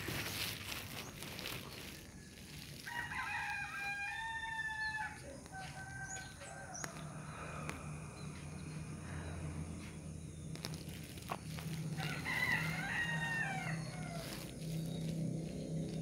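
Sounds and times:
rooster crowing: 2.0s - 8.4s, 11.8s - 15.0s.

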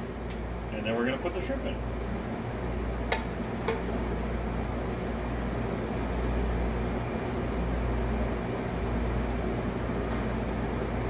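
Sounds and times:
kitchen ventilation drone: 0.0s - 11.0s.

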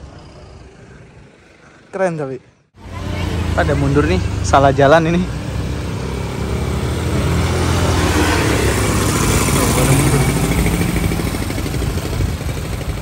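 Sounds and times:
diesel engine droning: 2.8s - 13.0s
constant rushing noise: 6.6s - 13.0s.

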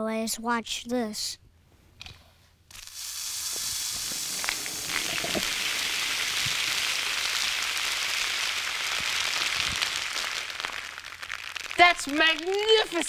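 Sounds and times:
soda fizzing hiss: 2.7s - 12.7s
spray falling: 2.7s - 13.0s.

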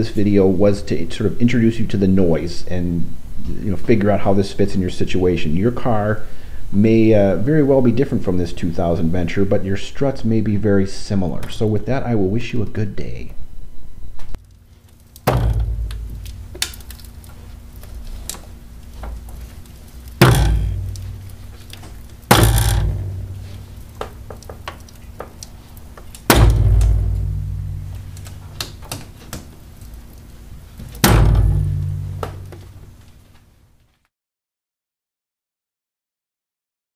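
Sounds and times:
faint steady hum: 0.0s - 34.0s
loud ringing strut bangs: 15.2s - 16.8s, 20.2s - 21.5s, 22.3s - 23.8s, 26.3s - 28.5s, 31.0s - 32.6s.

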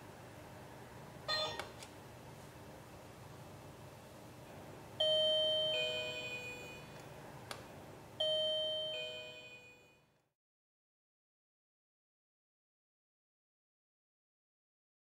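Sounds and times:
two-note ding-dong chime: 8.2s - 9.9s.

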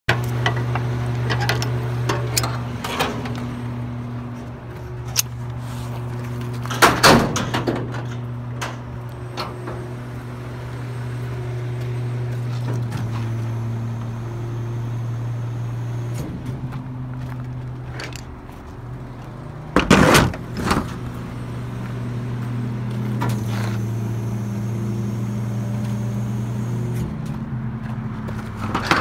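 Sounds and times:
metal clanks and rattles: 0.1s - 3.6s, 4.4s - 9.9s, 16.1s - 18.7s, 27.1s - 29.0s
diesel truck engine idling: 0.2s - 29.0s.

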